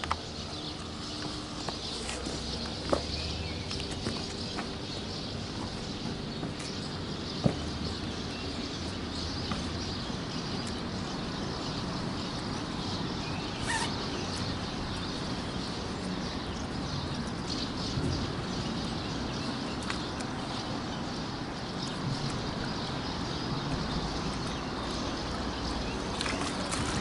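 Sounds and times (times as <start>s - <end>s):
faint bird calls: 13.5s - 14.4s.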